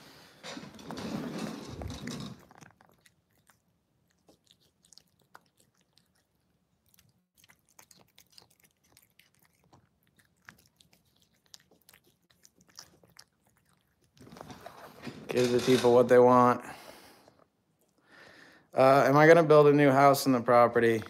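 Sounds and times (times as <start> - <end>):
cat crunching food: 0.9 - 15.0.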